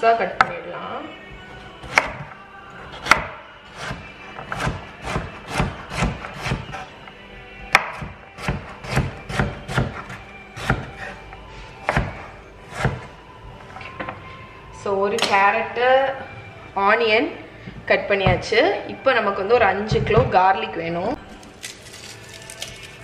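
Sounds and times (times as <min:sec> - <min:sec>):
knife chopping on wooden board: 0:01.8 - 0:02.3, 0:03.0 - 0:06.8, 0:07.7 - 0:11.1, 0:11.8 - 0:13.1.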